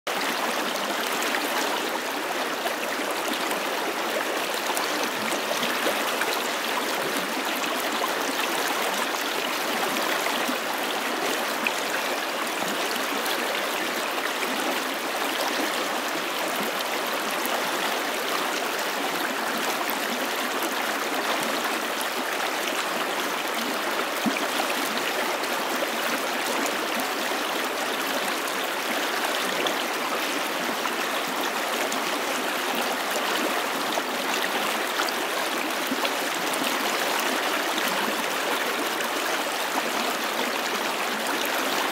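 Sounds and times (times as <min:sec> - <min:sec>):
stream rushing over rock: 0:00.1 - 0:41.9.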